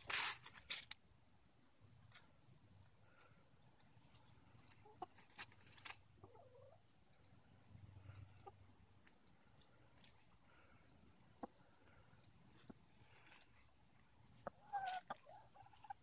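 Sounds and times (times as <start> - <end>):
hens scratching in dry leaves: 0.0 - 1.0, 1.7 - 11.4, 12.0 - 16.0
hen clucking: 4.6 - 6.9, 7.9 - 10.2, 11.1 - 13.5, 14.3 - 16.0.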